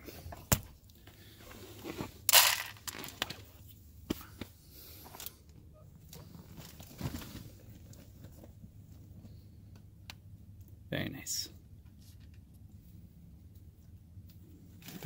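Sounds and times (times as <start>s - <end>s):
kibble clicks and rustles: 1.8s - 3.6s
dry kibble pouring into bowl: 2.3s - 3.1s.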